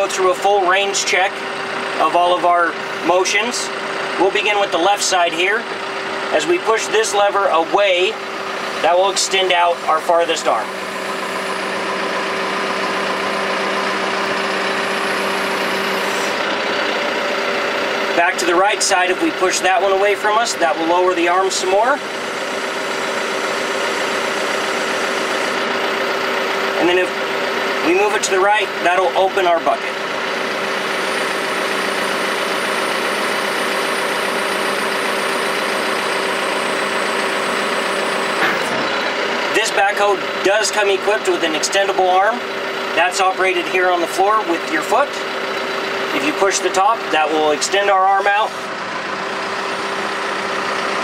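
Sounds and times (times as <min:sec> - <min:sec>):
diesel engine running: 0:00.0 - 0:51.0
hydraulics extending arm: 0:08.4 - 0:17.9, 0:21.0 - 0:40.4.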